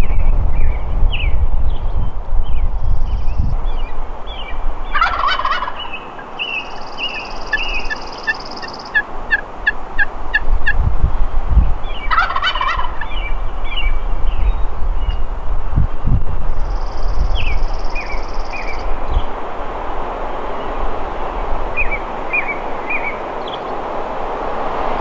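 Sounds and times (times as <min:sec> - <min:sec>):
turkey gobbling: 0:04.9 - 0:06.0, 0:07.5 - 0:10.8, 0:12.1 - 0:13.1.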